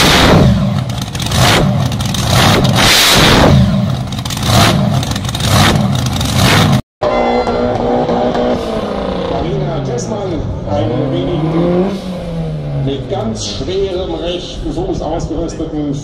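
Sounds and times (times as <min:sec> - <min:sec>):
drag car engine running steadily: 0:00.0 - 0:06.8
dragster engine revving: 0:00.0 - 0:06.8, 0:07.5 - 0:14.6.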